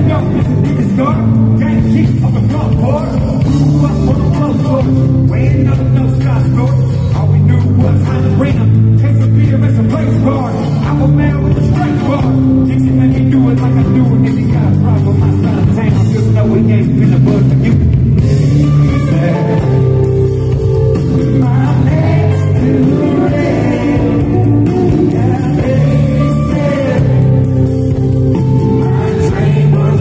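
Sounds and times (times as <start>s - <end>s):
man singing: 0.0s - 20.2s, 21.0s - 27.7s, 28.3s - 30.0s
live band playing: 0.0s - 30.0s.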